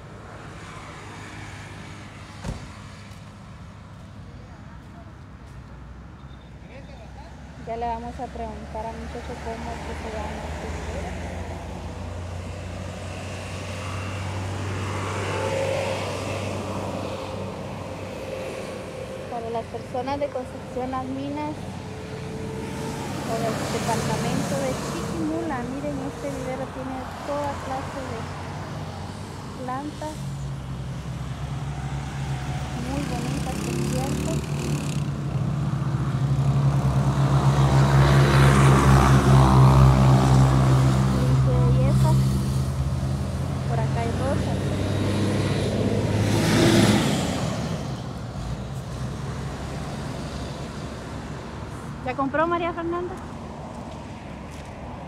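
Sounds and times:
vehicle engine rumble: 0:01.8 - 0:55.0.

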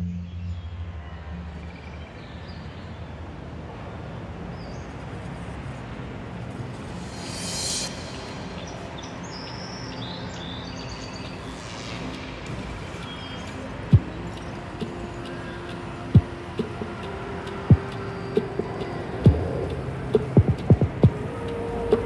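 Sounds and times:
outdoor background noise: 0:00.0 - 0:22.0
brief hiss: 0:06.8 - 0:09.5.

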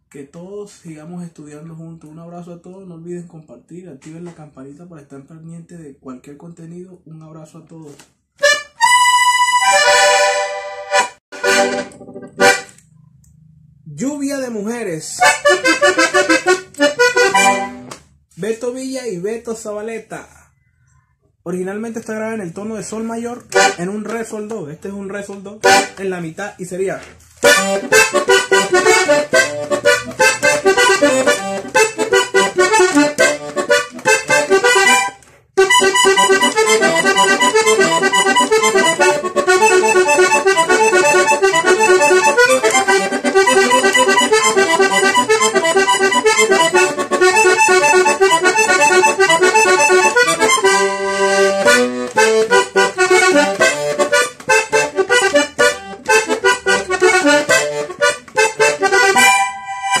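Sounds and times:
button accordion melody: 0:08.4 - 0:13.1, 0:15.2 - 0:18.0, 0:23.4 - 0:24.1, 0:25.6 - 0:26.2, 0:27.4 - 1:00.0.

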